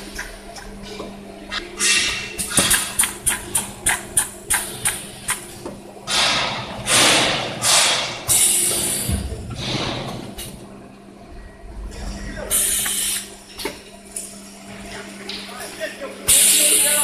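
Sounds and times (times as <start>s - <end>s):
machine hum: 0.0s - 17.0s
sharp machine clicks: 2.5s - 5.4s
pneumatic hissing bursts: 6.2s - 9.2s, 12.5s - 13.3s.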